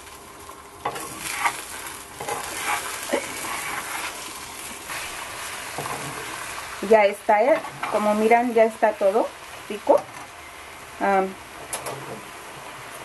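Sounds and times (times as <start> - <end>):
food sizzling in frying pan: 0.0 - 13.0
metal spoon scraping pan: 0.9 - 1.6, 2.2 - 4.2.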